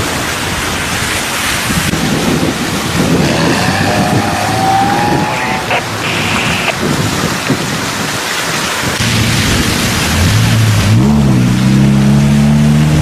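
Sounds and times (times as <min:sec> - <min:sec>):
water rushing and spraying: 0:00.0 - 0:13.0
car engine: 0:02.8 - 0:06.7.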